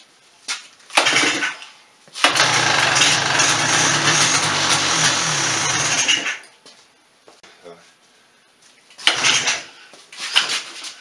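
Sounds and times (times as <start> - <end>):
engine running: 2.2 - 6.2
recoil starter pull: 2.2 - 6.4, 9.0 - 9.6.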